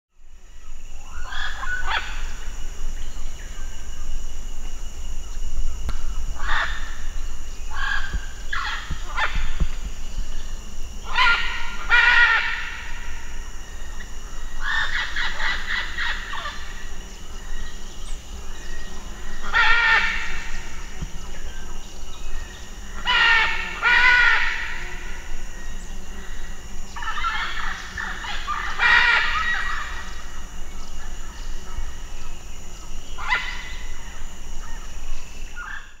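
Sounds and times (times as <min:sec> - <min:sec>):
macaws squawking harshly: 0:11.1 - 0:12.7, 0:19.4 - 0:20.5, 0:23.0 - 0:24.8, 0:27.0 - 0:30.0.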